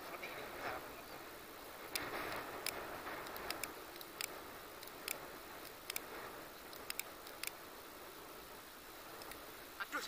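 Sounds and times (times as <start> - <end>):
faint wind noise: 0.0 - 10.0
sharp short clicks: 1.9 - 6.1, 6.7 - 7.6.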